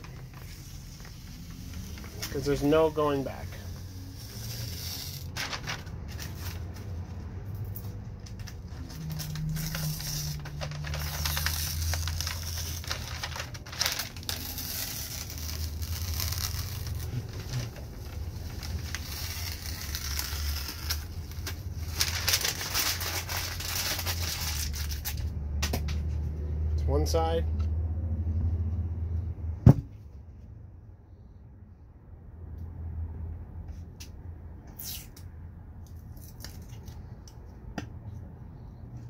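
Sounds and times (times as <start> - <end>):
masking film peeling and crackling: 0.0 - 7.1, 7.8 - 25.3.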